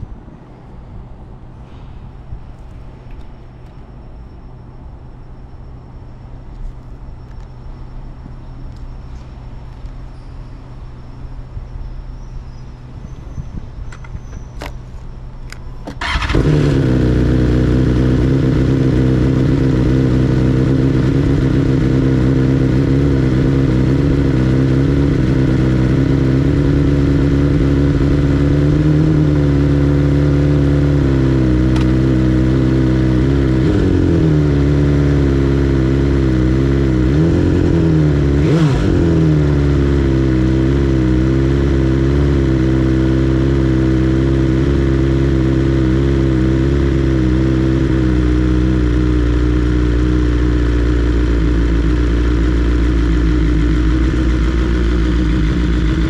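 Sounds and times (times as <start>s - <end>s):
motorcycle engine idling: 16.0s - 56.0s.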